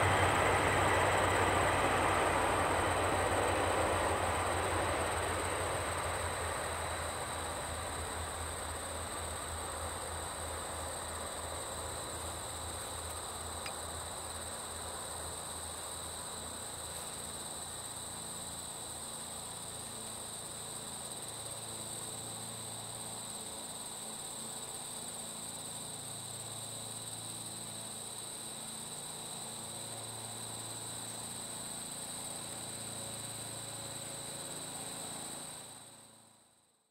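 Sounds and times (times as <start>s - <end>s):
diesel locomotive rumble: 0.0s - 8.6s
crickets trilling: 0.0s - 36.3s.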